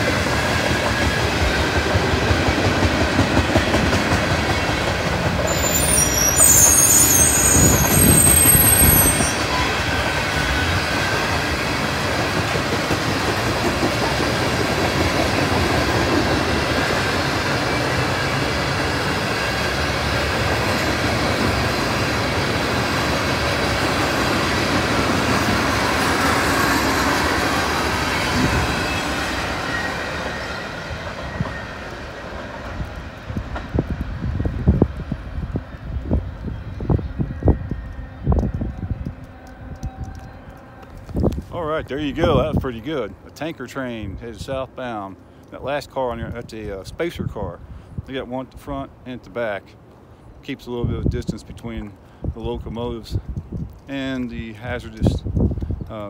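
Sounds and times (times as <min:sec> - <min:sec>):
train wheels rolling on rail: 0:00.0 - 0:56.0
high metallic wheel squeal: 0:05.5 - 0:09.9.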